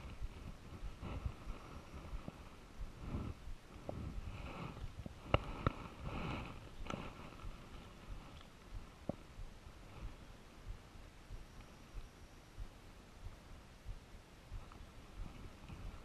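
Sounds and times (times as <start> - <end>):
rustling of clothing and grass: 0.0 - 16.0.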